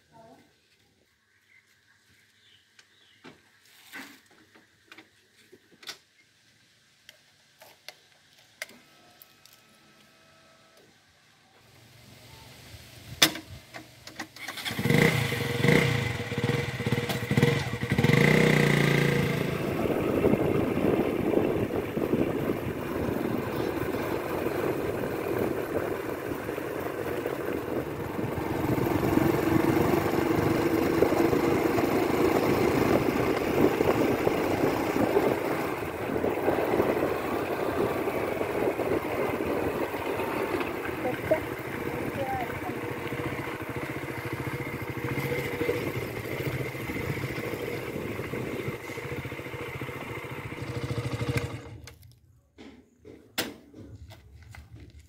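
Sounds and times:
road and wind noise: 11.6s - 52.0s
motorcycle engine revving and running: 14.4s - 51.9s
rolling rumble: 19.0s - 51.9s.

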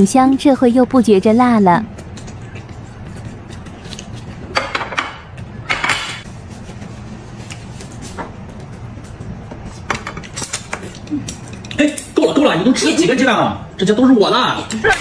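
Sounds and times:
close eating noises: 0.0s - 13.7s
dishes and cutlery clicking: 4.5s - 6.2s.

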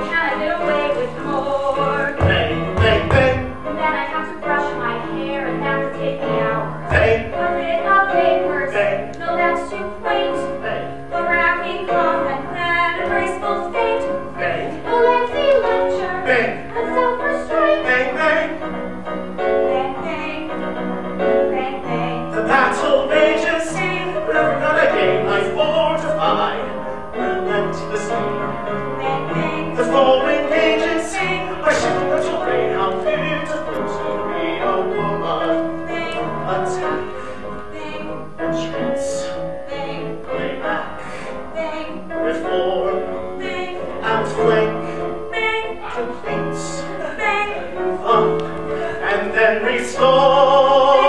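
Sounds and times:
piano accompaniment: 0.0s - 51.0s
person singing: 21.2s - 51.0s.

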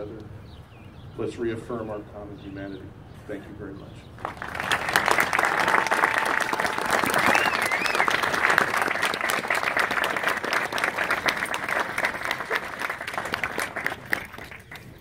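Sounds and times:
large crowd applauding: 4.2s - 15.0s.

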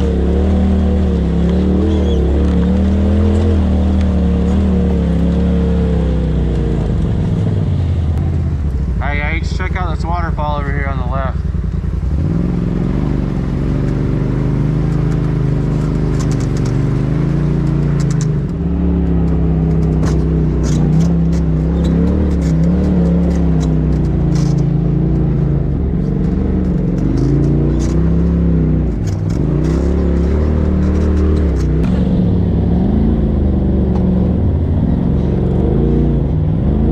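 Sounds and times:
utility vehicle engine running: 0.0s - 36.9s
clicks and rattles: 14.9s - 17.0s, 17.6s - 18.6s, 19.2s - 24.8s.

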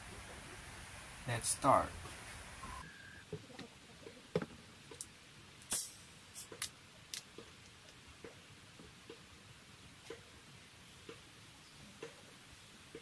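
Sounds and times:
carbonation hissing: 5.6s - 7.5s.

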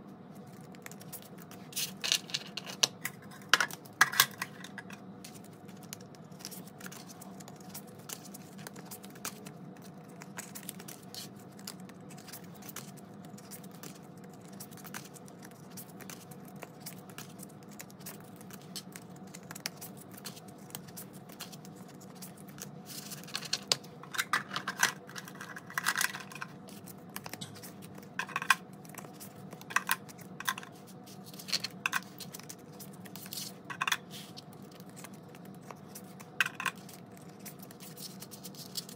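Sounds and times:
plastic envelopes crinkling: 0.3s - 38.9s
paper banknotes rustling: 5.2s - 23.7s, 28.8s - 38.9s.

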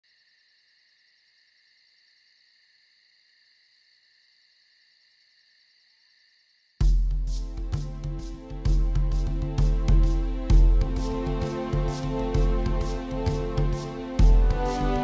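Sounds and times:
insects trilling: 0.0s - 6.8s.

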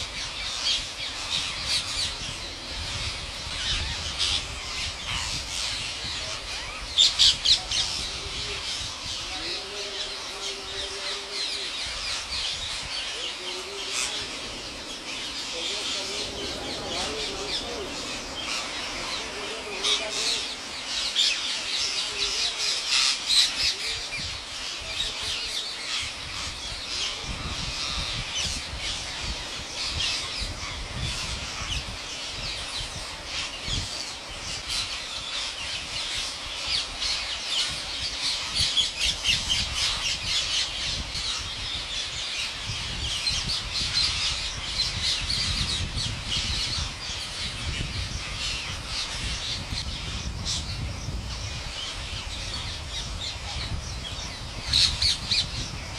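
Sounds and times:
parakeets screeching: 0.0s - 55.9s.

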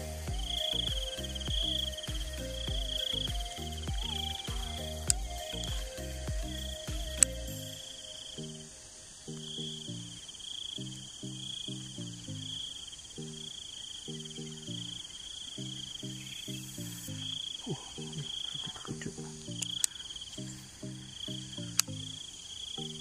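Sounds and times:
background music with low notes: 0.0s - 23.0s
insects chirring: 0.3s - 23.0s
sharp clicks: 19.3s - 20.1s.

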